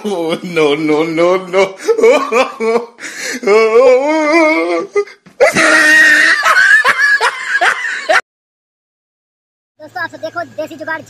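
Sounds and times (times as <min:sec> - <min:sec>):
loud human laughter: 0:00.0 - 0:04.6, 0:05.4 - 0:08.2.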